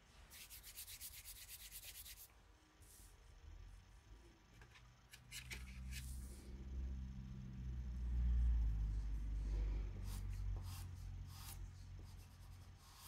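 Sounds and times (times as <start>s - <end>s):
rubbing and scratching on paper: 0.3s - 2.3s, 10.1s - 13.0s.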